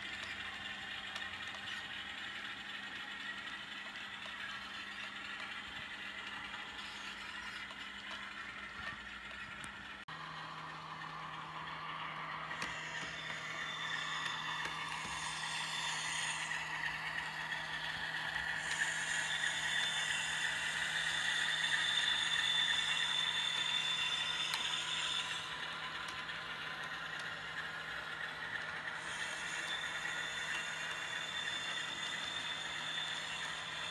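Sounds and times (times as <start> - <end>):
model train whirring: 0.0 - 33.9.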